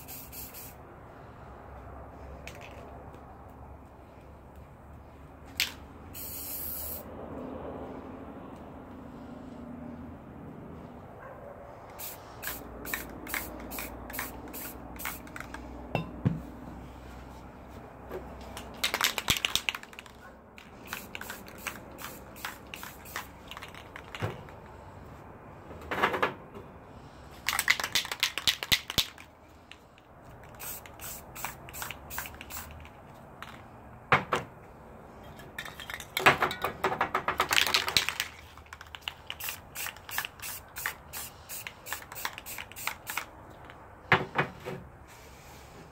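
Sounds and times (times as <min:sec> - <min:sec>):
spray paint can hissing: 0:00.0 - 0:00.8, 0:05.6 - 0:07.1, 0:12.0 - 0:15.6, 0:18.8 - 0:24.2, 0:27.5 - 0:29.2, 0:30.4 - 0:33.6, 0:37.5 - 0:43.3.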